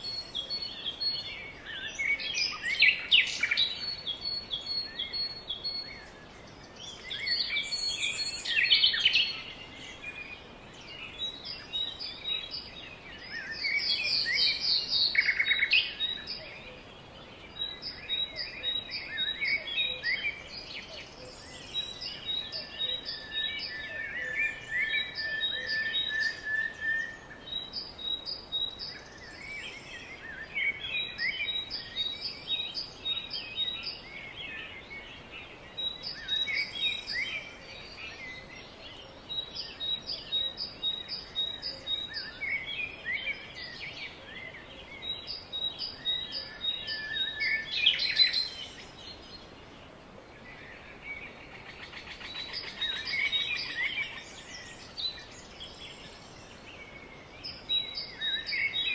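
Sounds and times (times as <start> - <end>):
long steady bird whistle: 0.0 - 49.6, 50.5 - 58.9
songbirds singing: 0.0 - 58.9.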